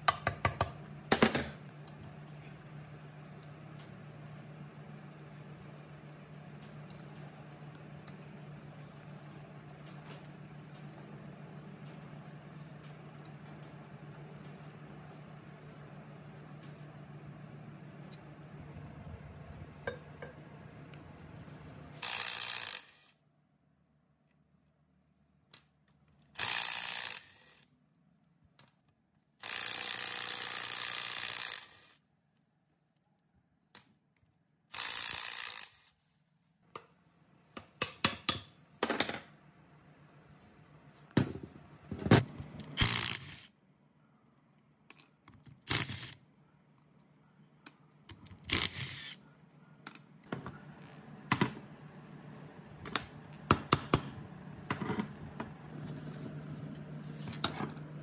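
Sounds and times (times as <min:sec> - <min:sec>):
impact wrench bursts: 0:22.0 - 0:23.2, 0:26.4 - 0:27.6, 0:29.4 - 0:32.0, 0:34.7 - 0:35.9, 0:42.8 - 0:43.5.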